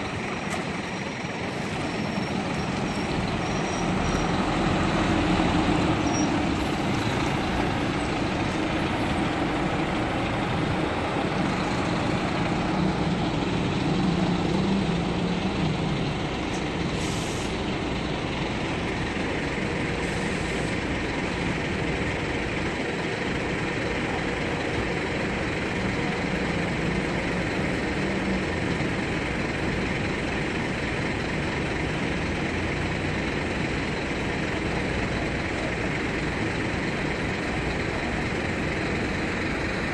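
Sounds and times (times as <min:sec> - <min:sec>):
bus diesel engines running: 0:00.0 - 0:39.9
short air hiss: 0:16.9 - 0:17.6.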